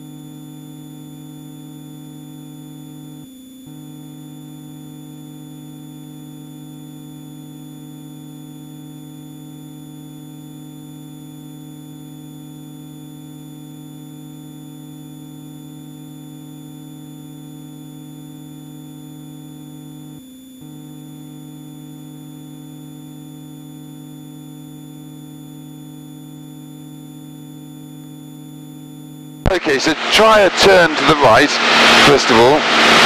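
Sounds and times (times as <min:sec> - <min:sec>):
airplane engine and propeller droning: 0:29.4 - 0:33.0.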